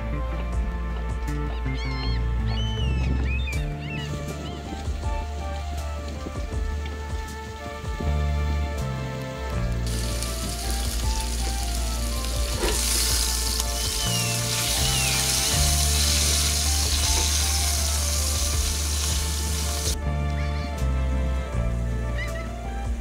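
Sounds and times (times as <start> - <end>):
background music with beat: 0.0 - 23.0
food sizzling in frying pan: 9.8 - 20.0.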